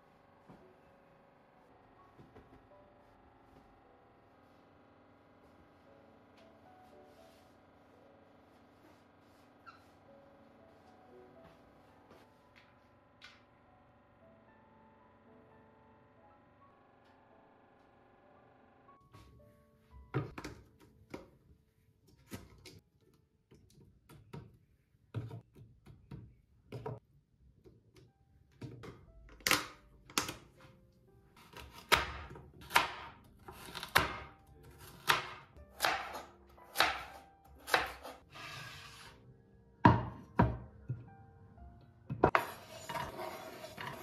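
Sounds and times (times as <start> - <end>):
soft background music: 0.0 - 22.8, 27.4 - 44.0
knife chopping on cutting board: 31.4 - 38.2.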